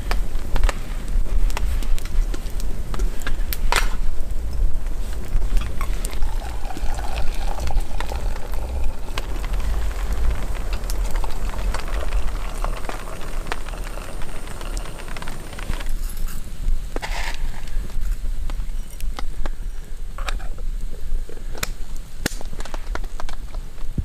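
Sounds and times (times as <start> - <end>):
campfire crackling: 0.0 - 24.0
low rumble: 4.1 - 16.9
rain pattering: 4.2 - 16.6.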